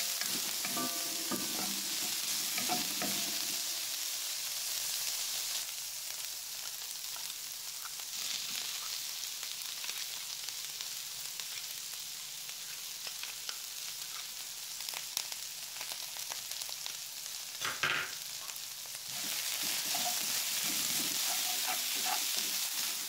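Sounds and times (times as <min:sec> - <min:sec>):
vegetables sizzling in hot oil: 0:00.0 - 0:23.0.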